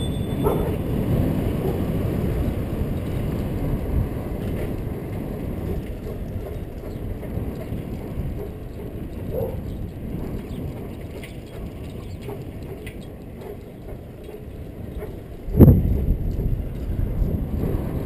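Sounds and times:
bicycle tyres rumbling on asphalt: 0:00.0 - 0:18.0
bike rattles: 0:00.0 - 0:18.0
wind on microphone: 0:00.0 - 0:18.0.

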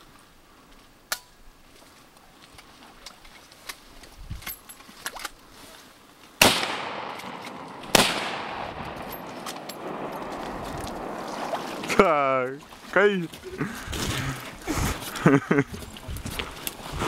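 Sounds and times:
gunshots with echo: 0:06.4 - 0:12.4.

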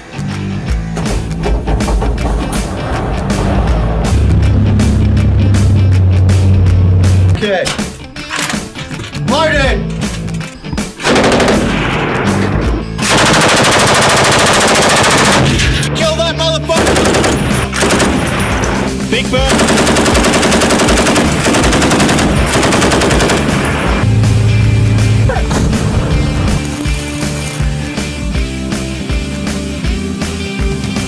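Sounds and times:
machine gun firing: 0:11.0 - 0:12.2, 0:13.0 - 0:15.6, 0:16.8 - 0:18.8, 0:19.5 - 0:24.0.

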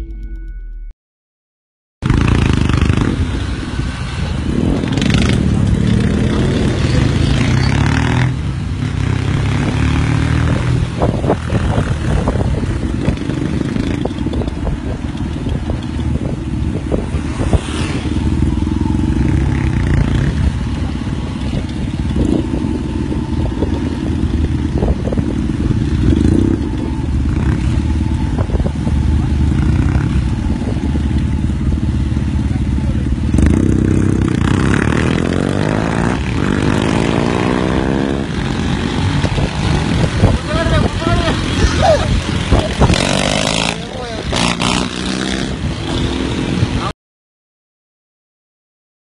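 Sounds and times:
motorcycle engines: 0:02.0 - 0:46.9
road rumble: 0:02.0 - 0:46.9.

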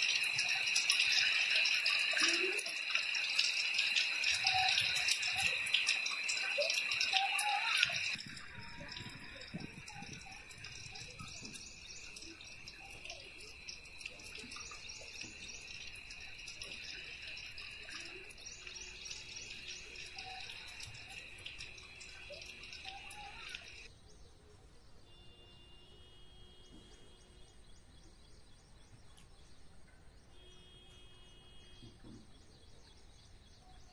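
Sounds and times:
insects shrilling: 0:00.0 - 0:23.9.

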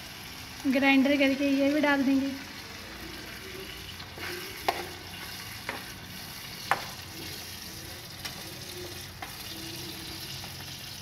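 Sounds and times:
food sizzling in a frying pan: 0:00.0 - 0:11.0
spatula knocking against pan: 0:04.6 - 0:05.0, 0:06.6 - 0:07.0.

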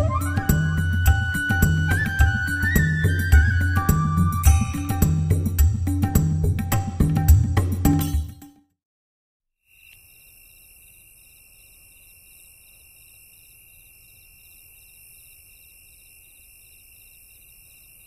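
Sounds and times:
night insects trilling: 0:09.7 - 0:18.0.

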